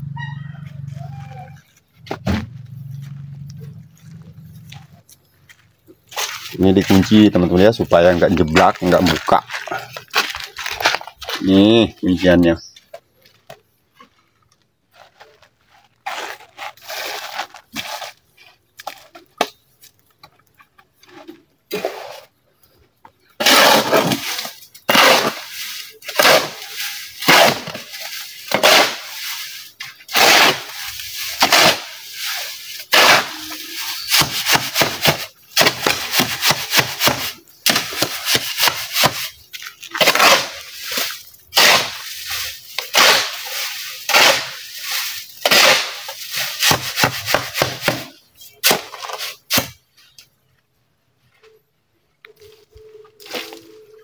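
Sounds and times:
shovel scraping wet concrete: 6.1s - 11.8s, 15.0s - 18.2s, 21.1s - 22.3s, 23.4s - 49.8s.

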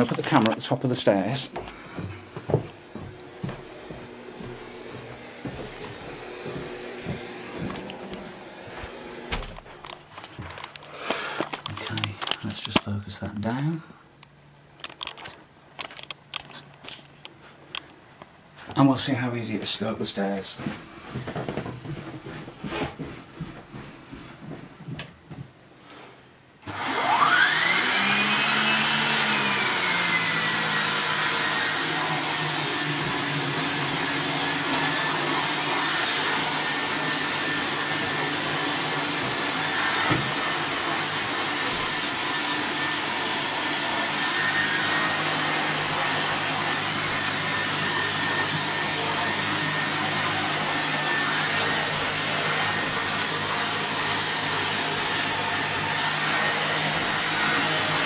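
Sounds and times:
vacuum cleaner motor whine: 2.0s - 9.7s, 26.6s - 58.0s.

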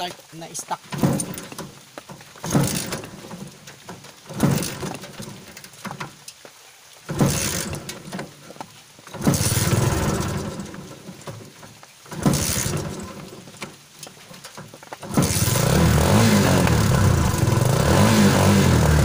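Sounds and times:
motorcycle engine starting: 2.4s - 6.2s, 7.1s - 8.4s, 9.1s - 19.0s.

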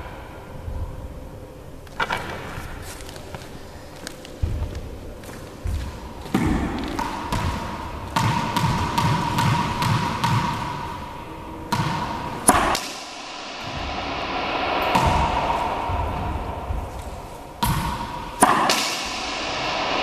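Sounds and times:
ball bouncing on wooden floor: 4.4s - 10.8s, 11.7s - 13.0s, 14.8s - 19.2s
racquet striking ball: 5.6s - 20.0s.

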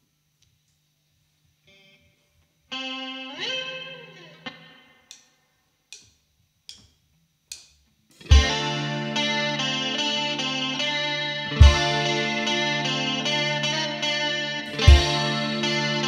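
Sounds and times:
electric guitar chord bending: 2.7s - 5.0s, 8.2s - 16.0s
drumstick clicks: 5.1s - 5.3s, 5.9s - 8.3s
rock band playing: 8.2s - 16.0s.

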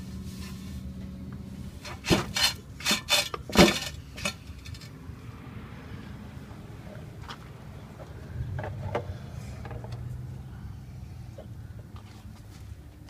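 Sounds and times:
sharp knocks and rubbing: 1.8s - 4.9s.

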